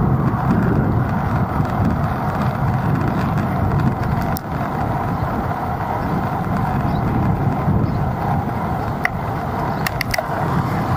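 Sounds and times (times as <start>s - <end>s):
city traffic road noise: 0.0s - 10.9s
wind rumbling on microphone: 0.0s - 10.9s
sharp click: 9.8s - 10.3s.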